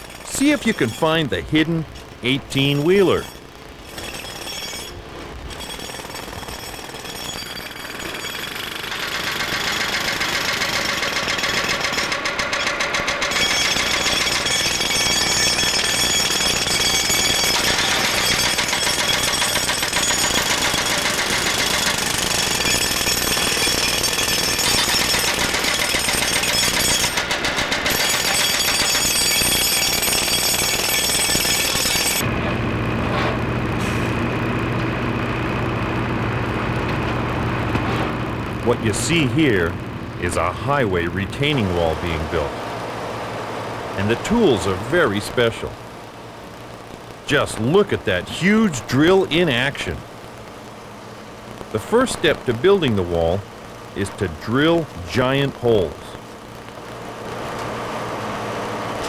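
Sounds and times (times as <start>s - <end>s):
jackhammers hammering: 0.0s - 45.7s
steady machine hum: 0.0s - 59.0s.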